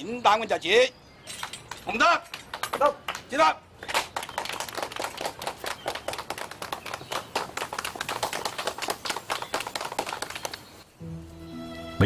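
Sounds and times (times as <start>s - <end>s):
people applauding: 3.9s - 10.7s.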